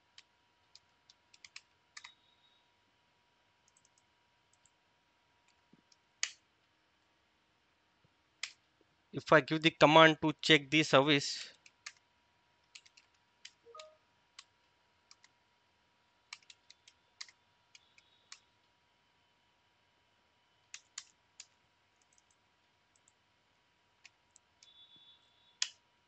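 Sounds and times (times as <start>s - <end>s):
keyboard keys clicking: 12.7s - 14.0s.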